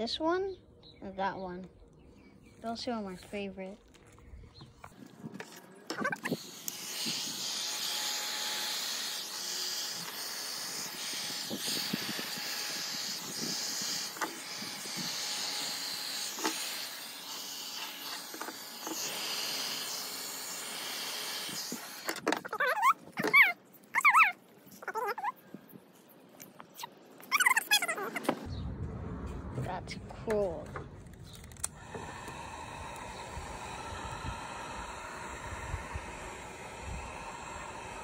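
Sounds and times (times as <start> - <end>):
heat gun blowing air: 5.9 - 22.3, 31.3 - 38.0.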